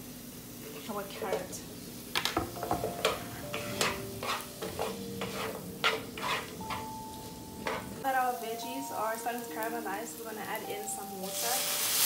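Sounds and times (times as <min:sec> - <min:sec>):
vegetables sizzling in a frying pan: 0:00.0 - 0:12.0
wooden spoon scraping a pan: 0:02.9 - 0:06.9, 0:07.6 - 0:08.0.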